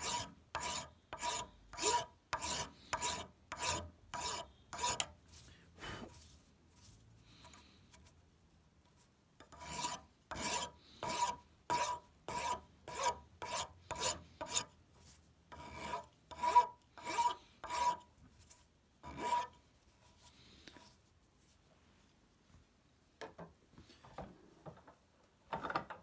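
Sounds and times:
rasp scraping wood: 0:00.0 - 0:05.2, 0:09.4 - 0:14.7, 0:15.5 - 0:18.1, 0:19.0 - 0:19.6.

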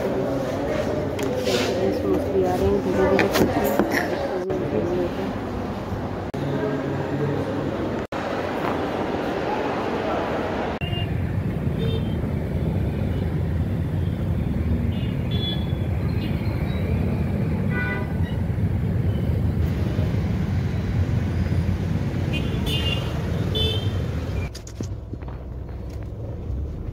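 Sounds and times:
engines rumbling: 0:00.0 - 0:26.9
vehicle horn beeps: 0:10.8 - 0:11.2, 0:15.0 - 0:16.5, 0:17.7 - 0:18.4.

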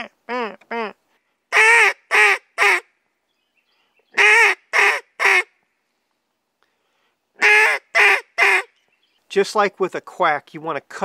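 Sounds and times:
duck call quacking notes: 0:00.0 - 0:02.9, 0:04.2 - 0:05.5, 0:07.4 - 0:08.7.

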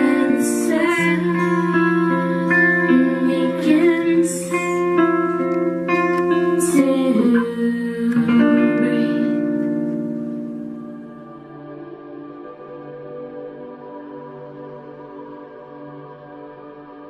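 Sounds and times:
acoustic guitar: 0:00.0 - 0:12.1
woman singing: 0:00.0 - 0:12.9.

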